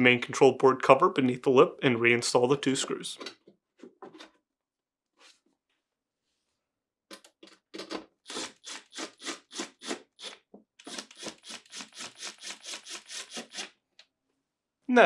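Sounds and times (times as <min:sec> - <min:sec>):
cordless driver rasping: 0:08.3 - 0:13.7.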